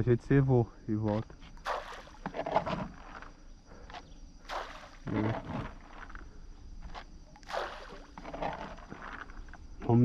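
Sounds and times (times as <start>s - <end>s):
bait spattering onto water: 1.6s - 2.3s, 7.4s - 8.1s.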